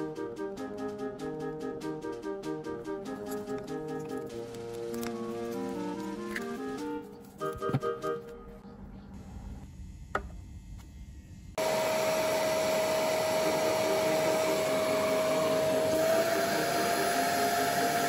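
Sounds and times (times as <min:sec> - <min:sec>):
vacuum cleaner motor whining: 0:11.6 - 0:18.0.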